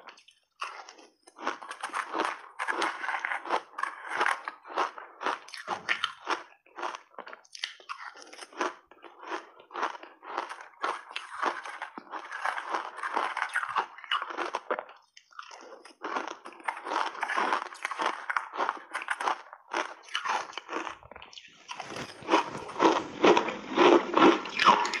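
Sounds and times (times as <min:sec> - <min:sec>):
crunching ice chunks: 0:20.2 - 0:25.0.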